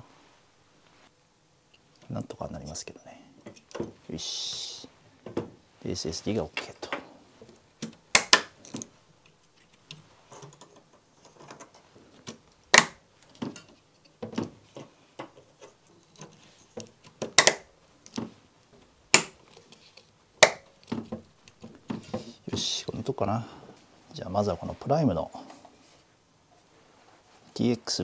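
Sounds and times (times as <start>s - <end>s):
small rattles of parts: 6.4s - 17.4s, 18.0s - 22.6s
rustling: 8.5s - 28.0s.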